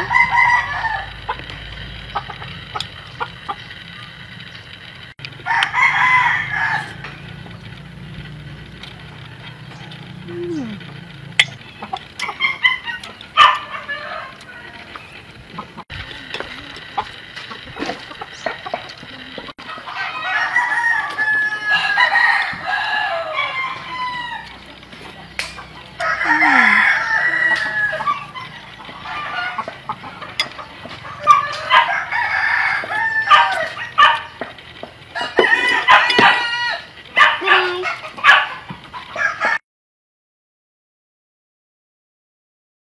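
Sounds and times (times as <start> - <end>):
roosters crowing: 0.0 - 4.0, 5.2 - 16.4, 18.2 - 39.6
chickens clucking: 0.0 - 39.6.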